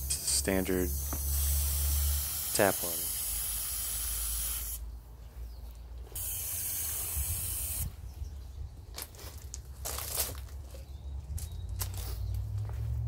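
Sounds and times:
hose spraying water into tub: 0.7 - 4.8.

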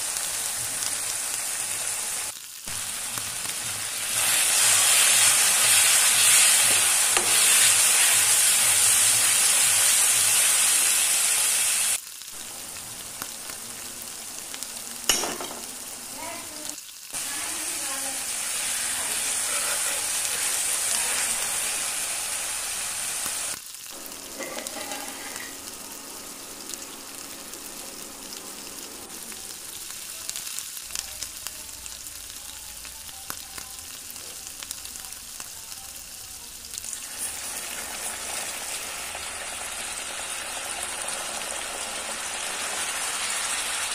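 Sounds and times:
spices sizzling in oil: 0.0 - 43.9
spoon stirring and scraping wok: 3.2 - 10.4, 18.7 - 21.8, 24.0 - 29.3.

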